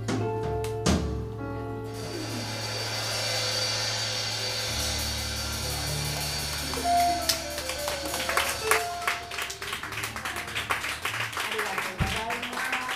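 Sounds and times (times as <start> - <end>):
live band holding a low chord: 1.8 - 10.8
small audience clapping: 5.8 - 12.9.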